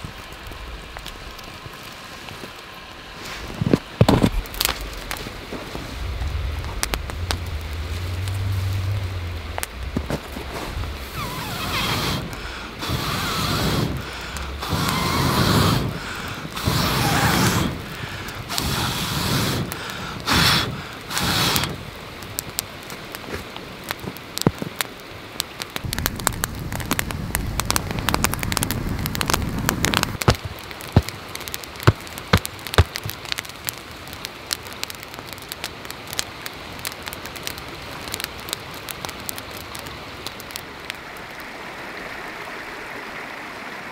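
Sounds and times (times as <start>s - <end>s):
campfire crackling and popping: 0.0s - 41.6s
breaths blown onto fire: 0.2s - 24.8s, 25.7s - 34.6s.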